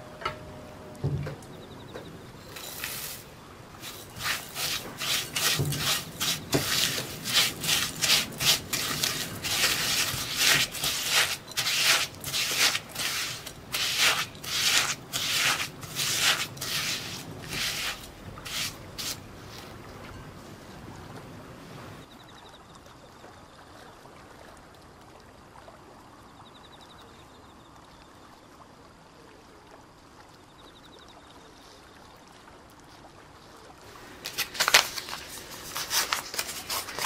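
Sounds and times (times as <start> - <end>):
spatula scraping glass bowl: 2.4 - 3.2, 3.8 - 19.2, 34.3 - 37.0.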